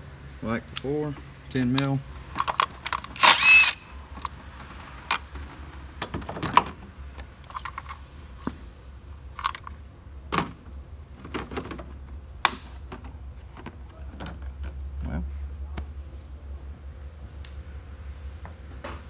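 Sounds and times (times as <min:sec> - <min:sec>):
cordless ratchet spinning: 0:03.0 - 0:03.9.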